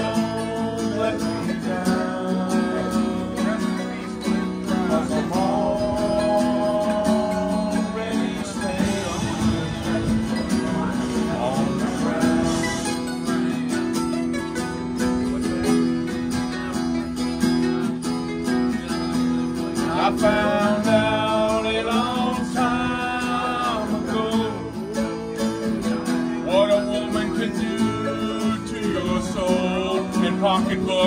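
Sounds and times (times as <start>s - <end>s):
person singing: 0.0s - 13.8s, 19.8s - 25.4s, 26.4s - 31.0s
acoustic guitar strumming: 0.0s - 31.0s.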